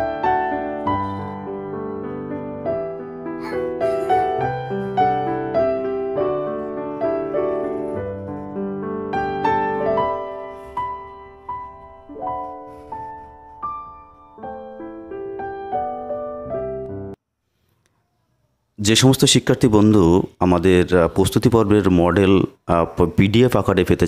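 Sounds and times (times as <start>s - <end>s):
gentle piano melody: 0.0s - 17.2s.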